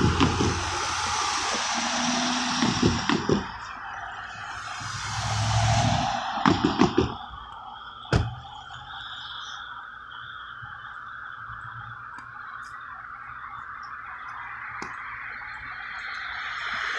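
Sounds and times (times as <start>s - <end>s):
car tyres thumping over rails: 8.1s - 8.5s.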